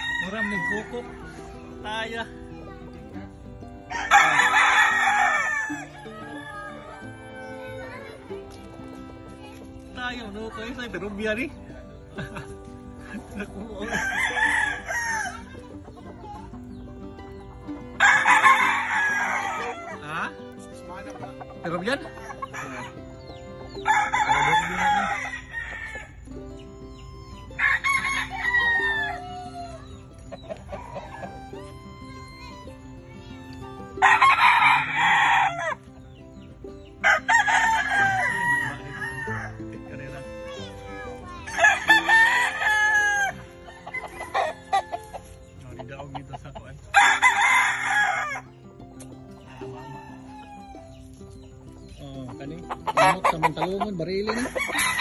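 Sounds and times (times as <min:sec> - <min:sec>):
rooster crowing: 0:00.0 - 0:01.1, 0:03.9 - 0:07.9, 0:27.6 - 0:29.8, 0:37.0 - 0:39.6, 0:41.6 - 0:45.3, 0:49.5 - 0:50.9.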